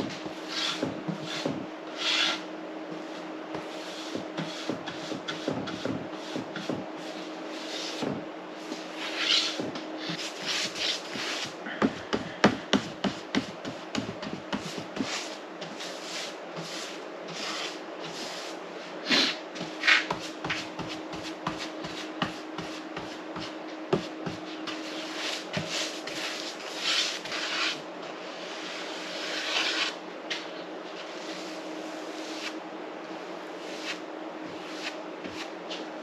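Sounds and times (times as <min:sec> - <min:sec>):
steady low hum: 0:00.0 - 0:36.0
paintbrush swishing on wood: 0:33.4 - 0:35.8.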